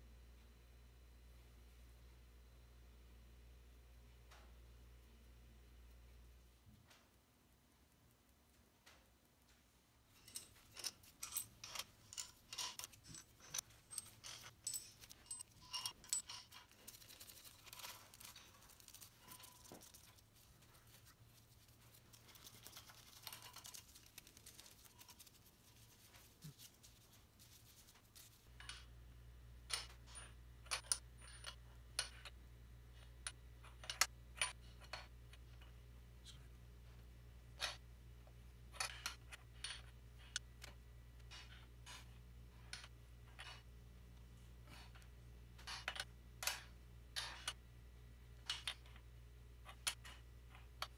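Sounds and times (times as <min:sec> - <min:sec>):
low steady hum: 0:00.0 - 0:50.9
metal nuts and wrench clinking: 0:10.1 - 0:28.9.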